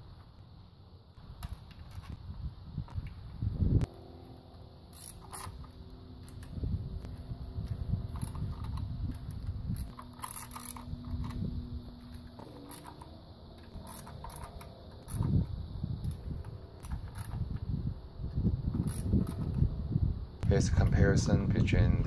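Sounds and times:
ratchet wrench clicking: 0:04.8 - 0:17.6, 0:18.7 - 0:19.7.

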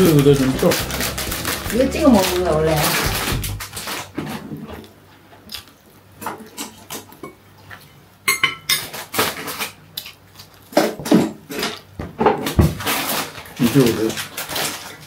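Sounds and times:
fork clinking on ceramic plates: 0:08.3 - 0:08.9.

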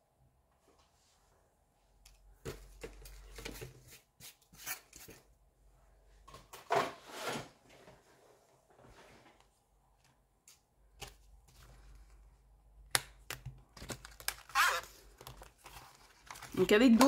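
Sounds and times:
paper rustling and scraping: 0:06.5 - 0:08.2, 0:14.3 - 0:17.0.

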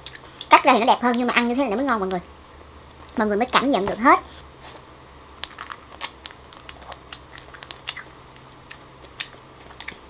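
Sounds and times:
wet chewing and mouth clicks: 0:05.4 - 0:10.0.

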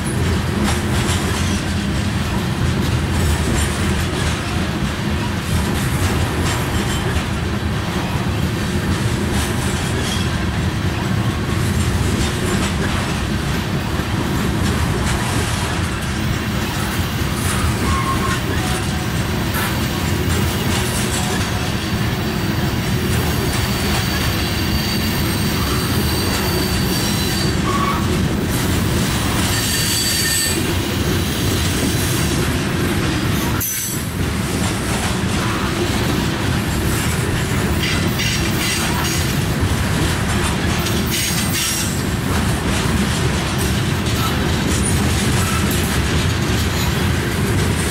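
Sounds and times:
steel wheels rumbling on rail: 0:00.0 - 0:47.9
high-pitched wheel squeal: 0:17.6 - 0:18.6, 0:23.5 - 0:28.1, 0:29.4 - 0:30.6.

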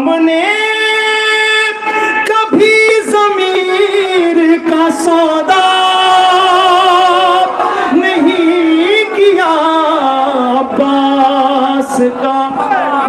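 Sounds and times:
man singing into a microphone: 0:00.0 - 0:13.0.

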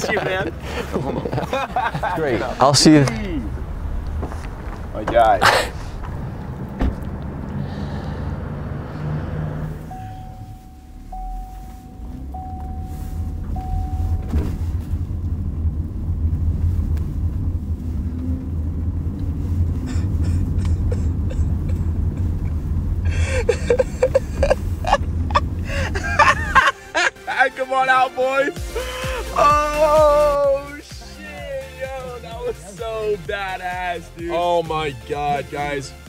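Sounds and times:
muffled car engine and tyres: 0:00.0 - 0:36.0
electronic beeps: 0:09.9 - 0:14.3.

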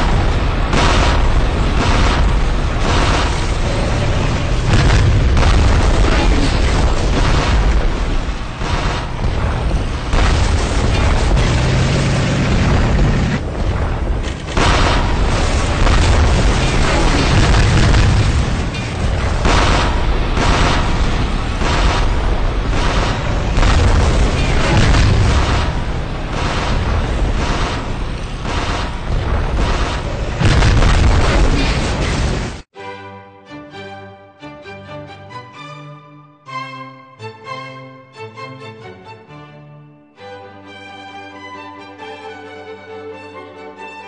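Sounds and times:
explosions barrage: 0:00.0 - 0:32.7
music: 0:32.7 - 0:44.0.

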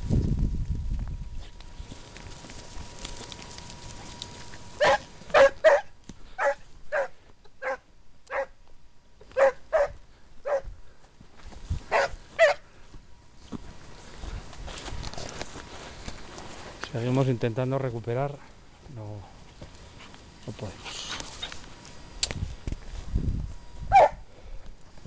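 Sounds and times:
hound barking: 0:04.7 - 0:08.6, 0:09.3 - 0:10.7, 0:11.9 - 0:12.7, 0:23.9 - 0:24.2.

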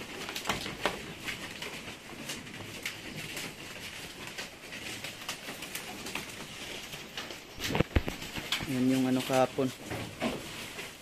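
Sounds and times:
hooves tapping on wooden slats: 0:00.0 - 0:11.0
leaves being pulled: 0:00.0 - 0:11.0.

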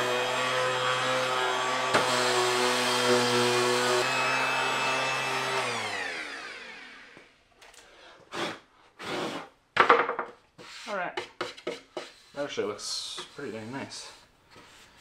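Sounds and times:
orbital sander whine: 0:00.0 - 0:07.2.

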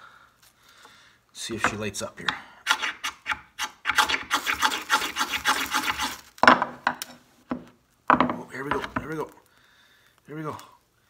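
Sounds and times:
knife scraping fire steel: 0:02.6 - 0:06.3.

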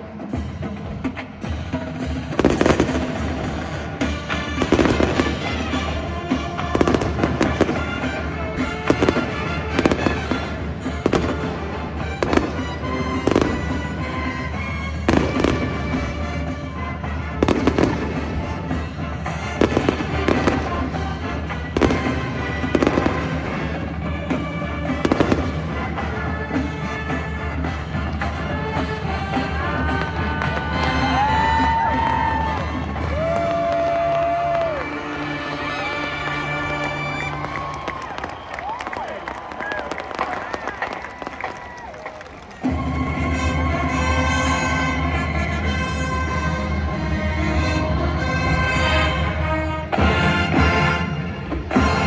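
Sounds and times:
music playing: 0:00.0 - 0:52.0
fireworks bursting and popping: 0:01.5 - 0:28.5, 0:37.2 - 0:44.3.

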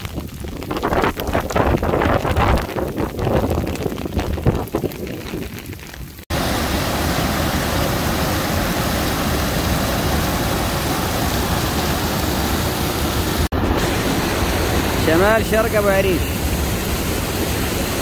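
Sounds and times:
wind on microphone: 0:00.0 - 0:06.2
floodwater rushing over weir: 0:06.3 - 0:18.0.

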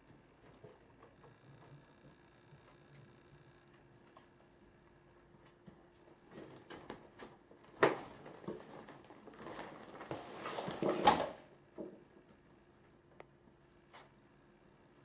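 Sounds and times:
crinkly nylon rustling: 0:06.3 - 0:11.4.

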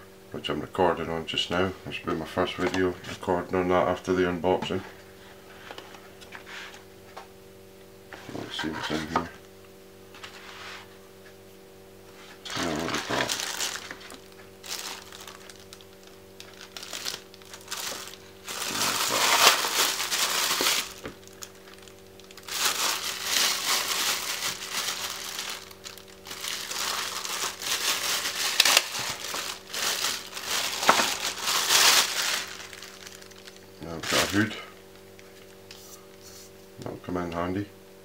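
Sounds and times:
plastic wrapping crinkling: 0:12.2 - 0:35.7.

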